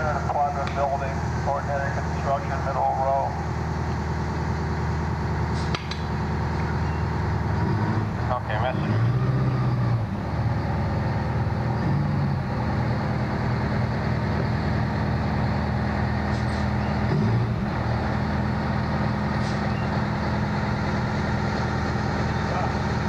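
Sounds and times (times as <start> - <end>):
fire engine motor running: 0.0 - 23.0.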